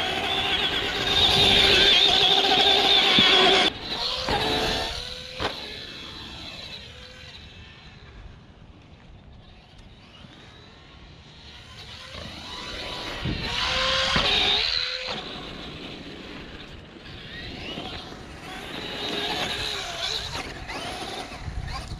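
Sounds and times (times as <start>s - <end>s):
rc truck motor whine: 0.0s - 21.9s.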